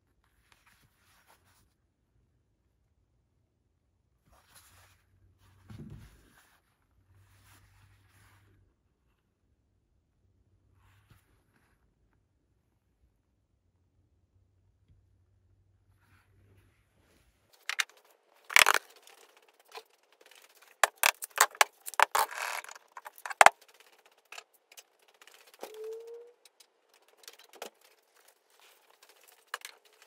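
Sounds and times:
handling clicks and rattles: 17.6 - 30.0.

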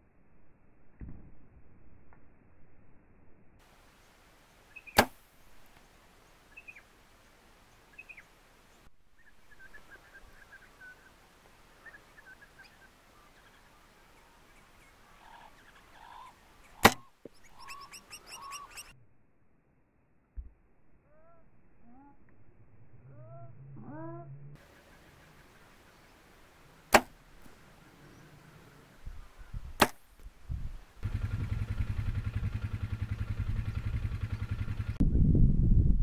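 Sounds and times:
small birds chirping: 3.9 - 19.0, 24.6 - 29.8, 31.1 - 35.0
bow shot sharp crack: 4.8 - 5.4, 16.7 - 17.1, 26.9 - 27.6, 29.7 - 30.3.

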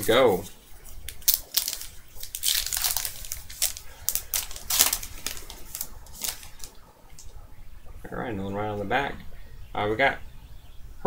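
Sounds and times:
foil wrapper crinkling and tearing: 0.0 - 6.8.

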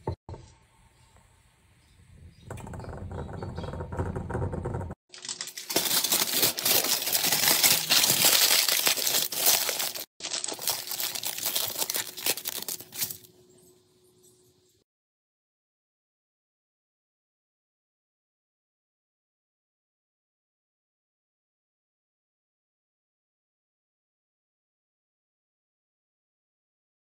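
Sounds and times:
aluminium foil crinkling: 5.1 - 13.4.

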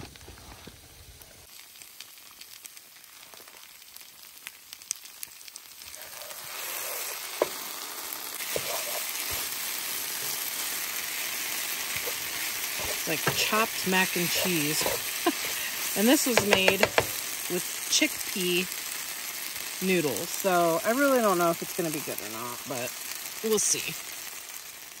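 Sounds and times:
food sizzling in a pan: 0.4 - 25.0
wooden spoon clicking and scraping: 8.4 - 17.3.

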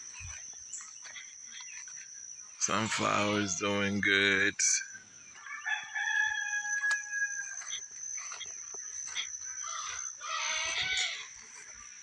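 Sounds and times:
high-pitched drone: 1.7 - 5.0
rooster crowing: 5.4 - 7.9.

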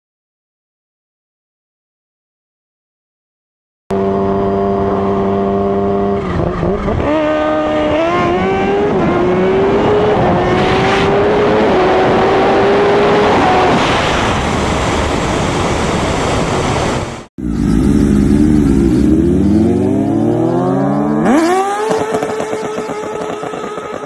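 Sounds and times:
motorcycle engine accelerating: 3.9 - 15.6, 17.4 - 24.0
wind rush: 7.9 - 17.3.

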